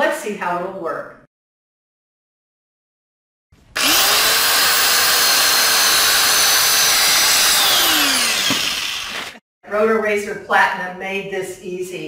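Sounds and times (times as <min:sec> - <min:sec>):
circular saw cutting branch: 0:03.7 - 0:09.4.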